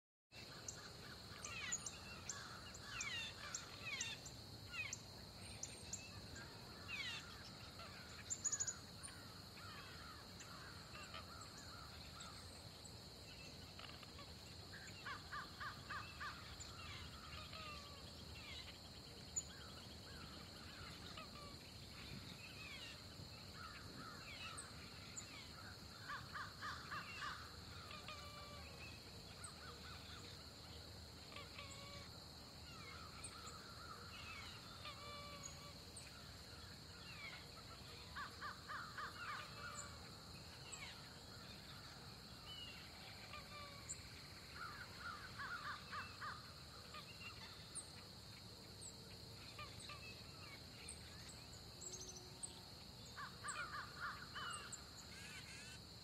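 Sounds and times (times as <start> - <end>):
rapid repeated bird calls: 0.4 - 56.0
birds chirping and calling: 0.5 - 5.0.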